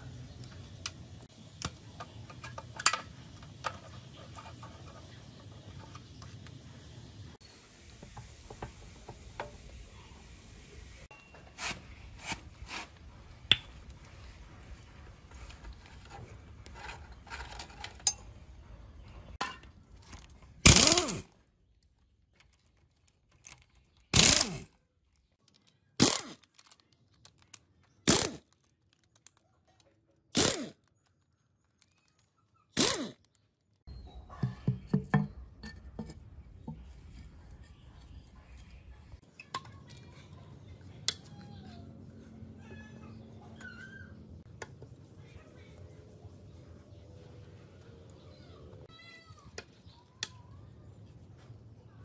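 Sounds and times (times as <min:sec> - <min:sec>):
power wrench spinning bolts: 0:20.7 - 0:21.2, 0:24.1 - 0:24.7, 0:26.0 - 0:26.4, 0:28.1 - 0:28.4, 0:30.4 - 0:30.8, 0:32.8 - 0:33.2.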